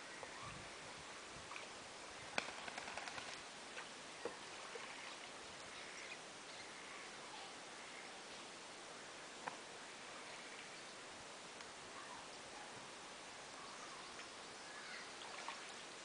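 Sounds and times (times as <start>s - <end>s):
faint chirps: 11.9s - 15.8s.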